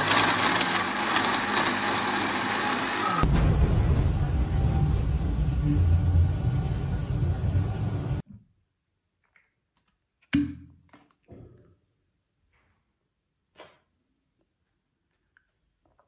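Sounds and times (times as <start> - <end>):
blender running: 0.0 - 3.3.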